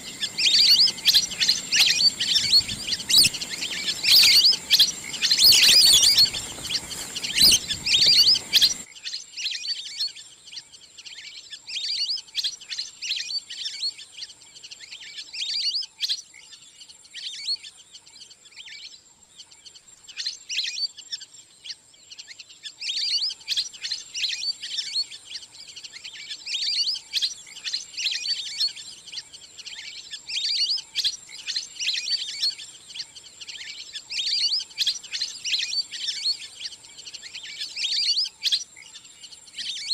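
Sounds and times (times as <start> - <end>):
ducks chirping whistles: 0.0 - 9.8, 25.8 - 39.9.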